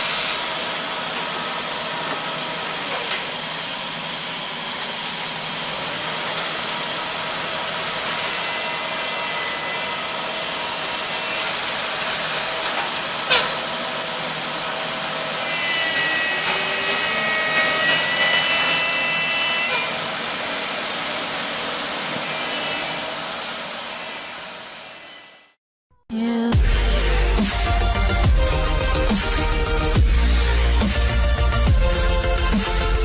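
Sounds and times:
heavy machinery diesel engines: 0:00.0 - 0:25.2
high whine: 0:03.4 - 0:25.4, 0:26.4 - 0:33.0.

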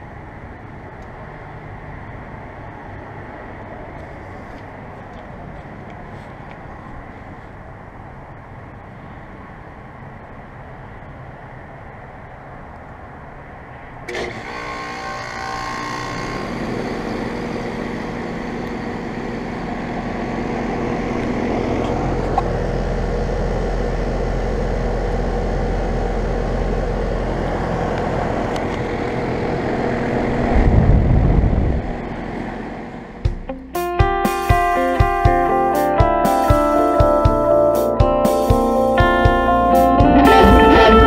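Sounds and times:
steady machine hum: 0:14.7 - 0:33.7, 0:39.0 - 0:41.0
loud low rumble: 0:18.8 - 0:33.3, 0:39.1 - 0:41.0
heat pump whoosh: 0:27.6 - 0:33.2.

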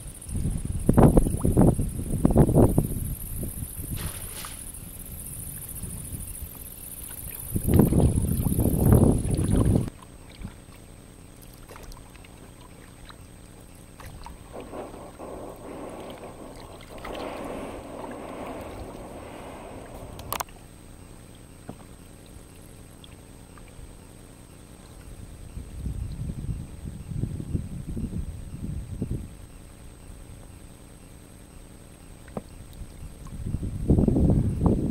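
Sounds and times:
paddle splashing in water: 0:09.2 - 0:20.6
loud low rumble: 0:14.4 - 0:20.5.

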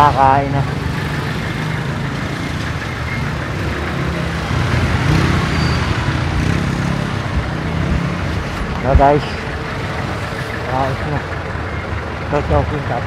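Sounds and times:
low engine hum: 0:00.0 - 0:13.0
motorcycle engines passing: 0:00.0 - 0:13.0.

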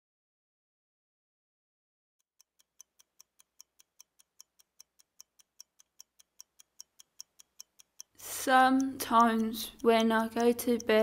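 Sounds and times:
clock ticking: 0:02.3 - 0:11.0.

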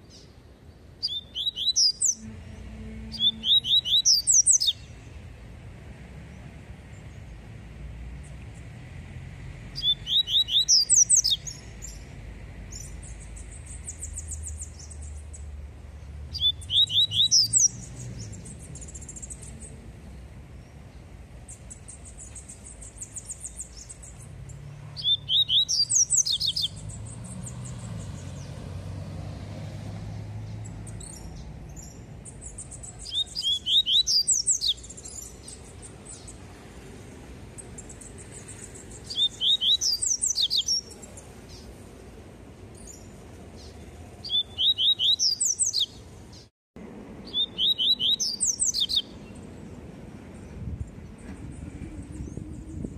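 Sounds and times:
soft bird twittering: 0:01.0 - 0:05.1, 0:09.8 - 0:12.1, 0:16.3 - 0:19.8, 0:20.6 - 0:28.6, 0:30.4 - 0:36.5, 0:37.6 - 0:41.8, 0:42.7 - 0:46.5, 0:47.2 - 0:49.8.

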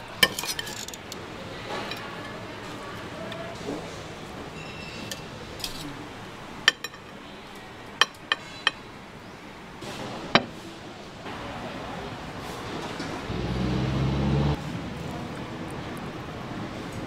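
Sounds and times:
steady background noise: 0:00.0 - 0:17.0
dishes and utensils clinking: 0:00.2 - 0:01.0, 0:06.6 - 0:07.2.

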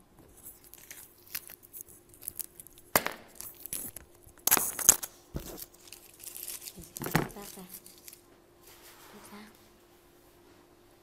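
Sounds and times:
paper rustling and crinkling: 0:00.3 - 0:02.8, 0:03.4 - 0:09.4.

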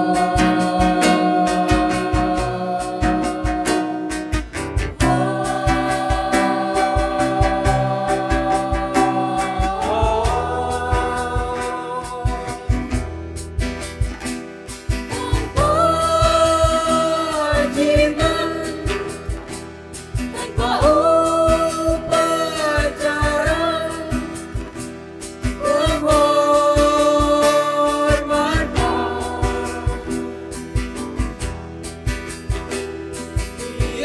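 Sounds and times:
girls singing in harmony: 0:00.0 - 0:13.0, 0:15.1 - 0:19.4, 0:20.2 - 0:24.5, 0:25.5 - 0:30.5, 0:33.4 - 0:34.0
acoustic guitar: 0:00.0 - 0:34.0
cajon beat: 0:00.0 - 0:34.0.

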